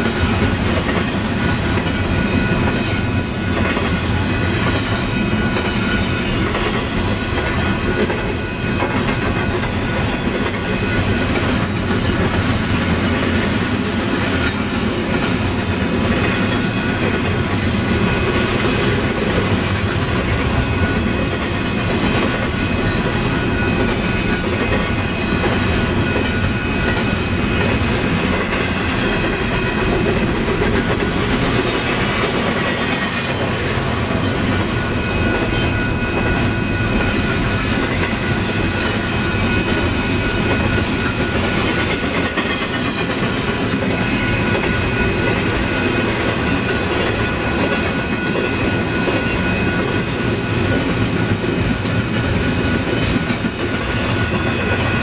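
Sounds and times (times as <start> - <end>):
train wheels clattering on rails: 0.0 - 55.0
high-pitched ringing tone: 34.1 - 42.6, 43.7 - 55.0.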